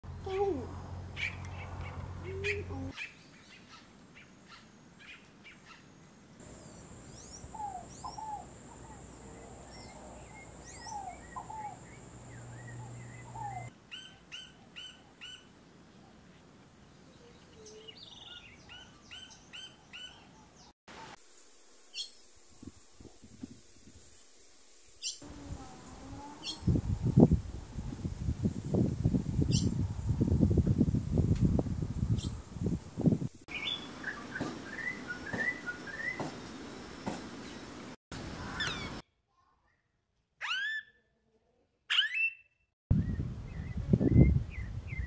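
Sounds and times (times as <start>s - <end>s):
songbirds chirping: 0.1s - 20.7s, 33.5s - 39.0s.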